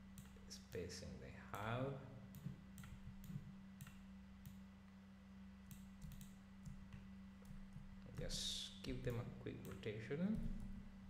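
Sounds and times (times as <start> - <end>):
low steady hum: 0.0 - 11.0
computer mouse clicking: 2.3 - 4.6, 5.7 - 8.3.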